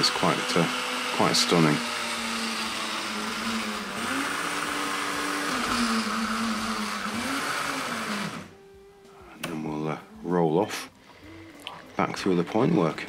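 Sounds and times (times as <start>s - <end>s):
small electric motor whirring: 0.0s - 8.6s.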